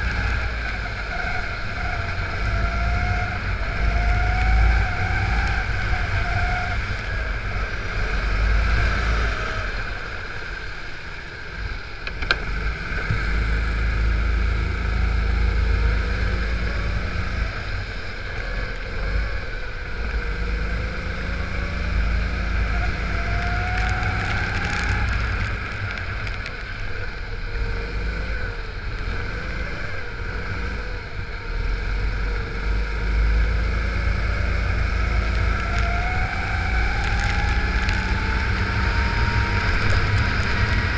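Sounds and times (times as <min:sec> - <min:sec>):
kart engine revving: 0:12.3 - 0:40.9.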